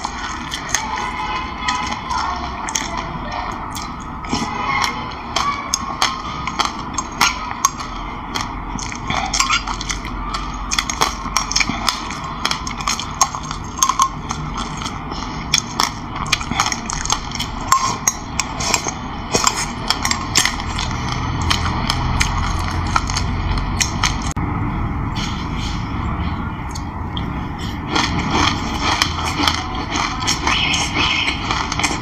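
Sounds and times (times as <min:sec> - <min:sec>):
crunchy chewing of seeds: 0:00.0 - 0:24.4, 0:26.7 - 0:32.0
spoon clinking on glass bowl: 0:12.8 - 0:14.9.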